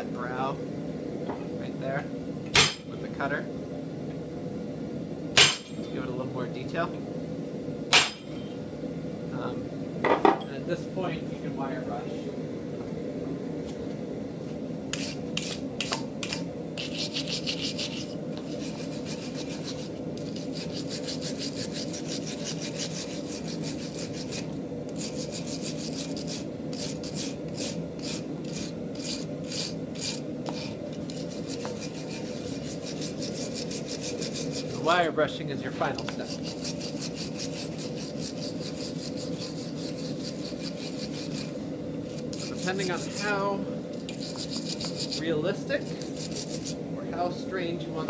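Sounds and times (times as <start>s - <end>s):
wire brush rasping on steel: 14.9s - 35.1s, 36.0s - 46.8s.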